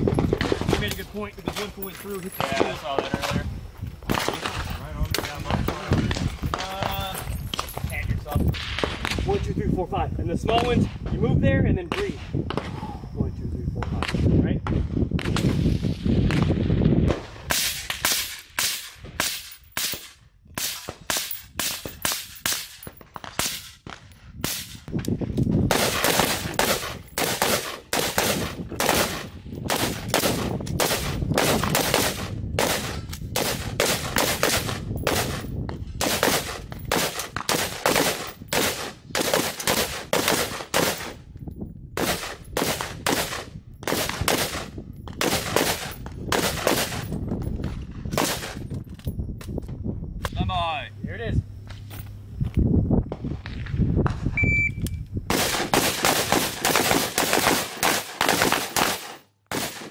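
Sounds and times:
gunshots: 0:04.1 - 0:07.0, 0:14.0 - 0:24.9, 0:25.7 - 0:41.2, 0:42.0 - 0:47.1, 0:48.1 - 0:48.6, 0:55.3 - 0:59.9.

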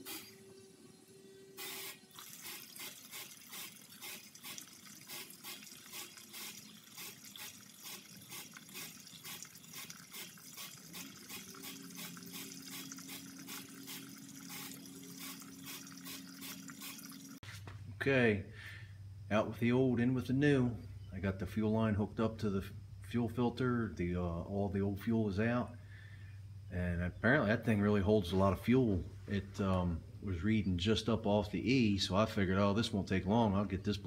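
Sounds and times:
fuel splashing into plastic pail: 0:01.6 - 0:17.4.

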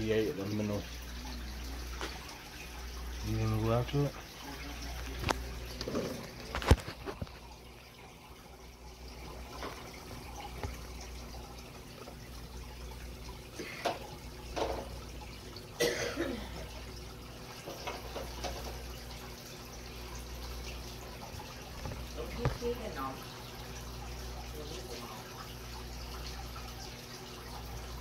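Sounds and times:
aquarium water bubbling: 0:00.0 - 0:28.0
knocks and scrapes: 0:05.8 - 0:07.5.

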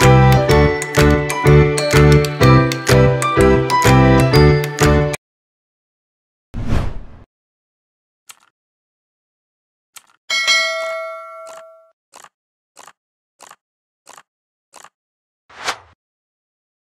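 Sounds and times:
notification bell ding: 0:10.3 - 0:11.9.

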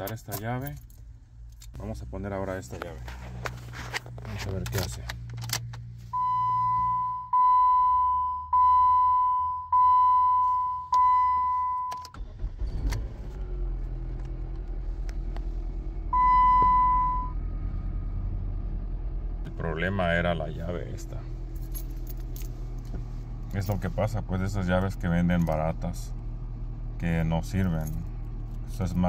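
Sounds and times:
car engine cranking and idling: 0:00.0 - 0:29.0
dashboard warning chime: 0:06.1 - 0:12.1, 0:16.2 - 0:17.4.

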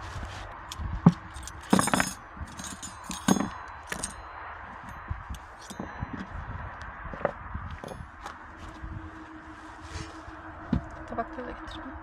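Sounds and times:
metal or glass objects clinking: 0:01.3 - 0:06.3.

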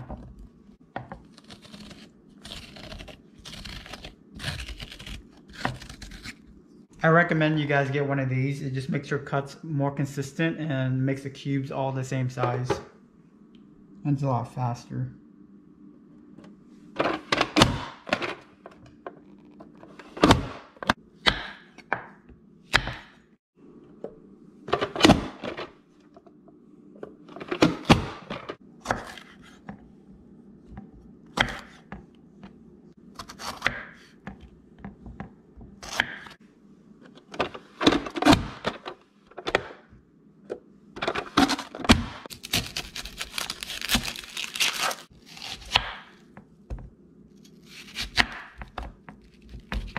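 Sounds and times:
faint steady hum: 0:00.2 - 0:20.0
knife chopping on wooden board: 0:31.4 - 0:32.0, 0:45.4 - 0:46.1, 0:47.9 - 0:49.9.

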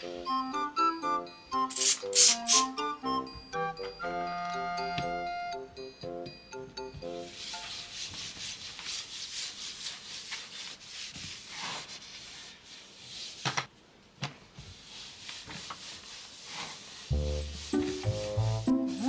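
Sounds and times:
cloth wiping wooden table: 0:01.7 - 0:02.7, 0:07.1 - 0:13.6, 0:14.5 - 0:18.7.

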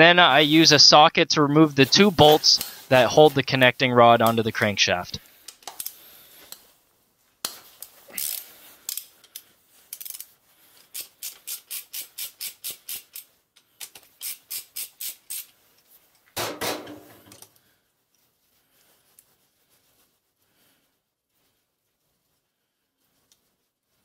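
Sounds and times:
socket ratchet clicking: 0:10.9 - 0:15.5.

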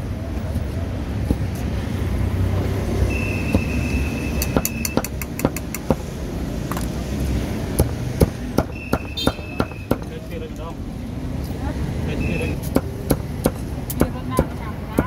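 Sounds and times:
street traffic rumble: 0:00.0 - 0:15.0
steady high beep: 0:03.1 - 0:05.0
cleaver chopping on a block: 0:04.4 - 0:06.1, 0:07.7 - 0:10.1, 0:12.6 - 0:15.0.

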